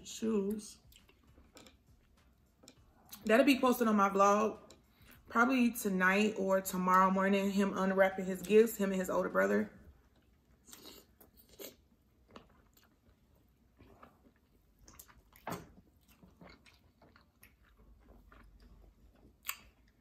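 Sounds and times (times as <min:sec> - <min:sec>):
chewing with lip smacks: 0:00.8 - 0:03.3, 0:10.1 - 0:20.0.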